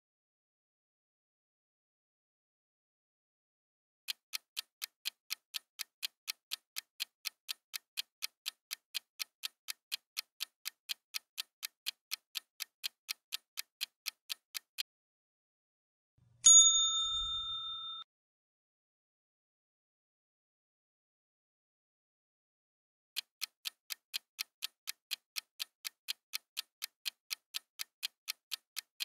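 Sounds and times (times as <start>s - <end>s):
clock ticking: 4.1s - 14.8s, 23.2s - 29.0s
bright ding: 16.5s - 18.1s.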